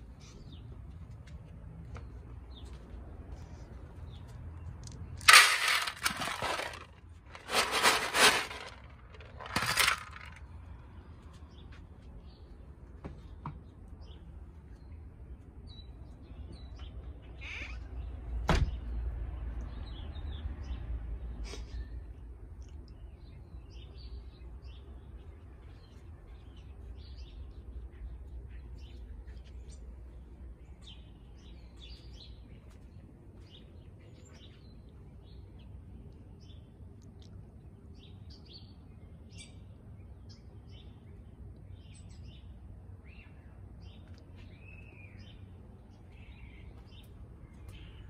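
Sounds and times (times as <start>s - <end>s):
dry cat food rattling into tray: 5.2s - 10.4s
small birds chirping: 8.5s - 48.0s.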